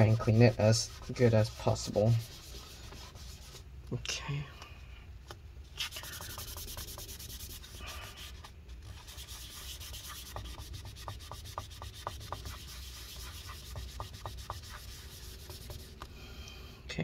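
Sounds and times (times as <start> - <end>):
paper towel rubbing on metal: 0.0 - 3.6, 5.8 - 16.0.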